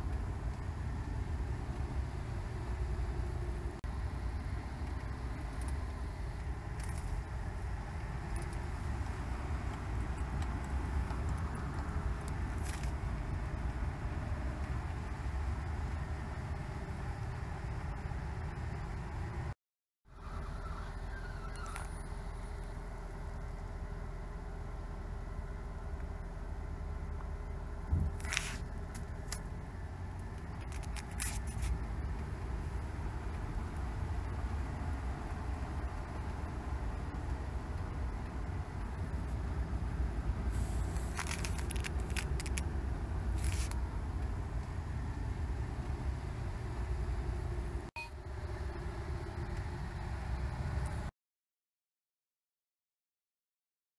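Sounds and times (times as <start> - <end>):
car engine and tyres rumbling: 0.0 - 51.1
short hissy bursts: 40.5 - 41.5.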